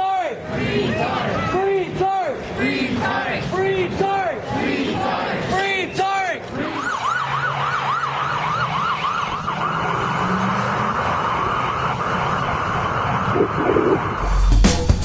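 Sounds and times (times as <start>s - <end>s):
traffic noise: 0.0s - 14.4s
emergency siren yelping: 6.6s - 14.2s.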